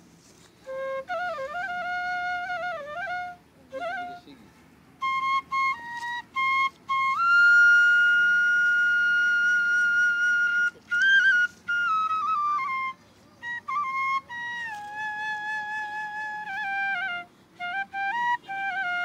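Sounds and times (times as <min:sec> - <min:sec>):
solo flute melody: 0:00.0 - 0:19.0.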